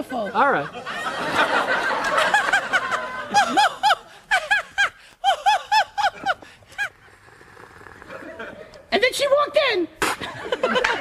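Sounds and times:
children laughing: 0.2s - 7.1s, 10.2s - 11.0s
high-pitched voice laughing: 3.3s - 7.0s.

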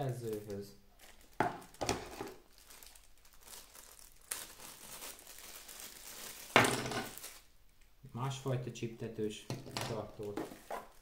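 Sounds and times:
packaging rustling and crinkling: 0.0s - 7.5s, 9.9s - 11.0s.

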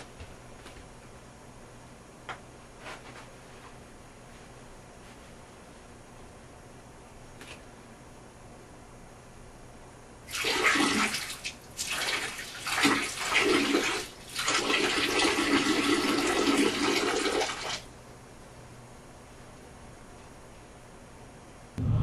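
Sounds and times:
toilet flushing: 10.3s - 17.8s.

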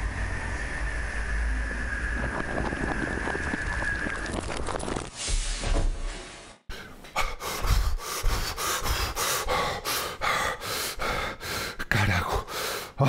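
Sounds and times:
rushing noise: 0.0s - 5.4s
man panting heavily: 6.7s - 13.0s.

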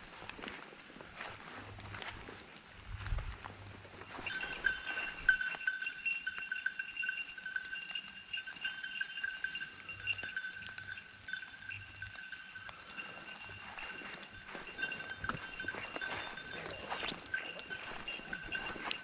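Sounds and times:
dog's bell jingling: 4.0s - 19.0s
dog moving through undergrowth: 12.7s - 19.0s.

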